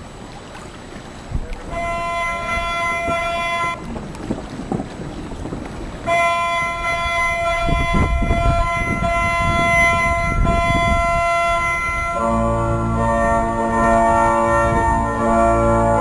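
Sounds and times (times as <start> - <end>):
electronic organ chord: 8.6 - 16.0.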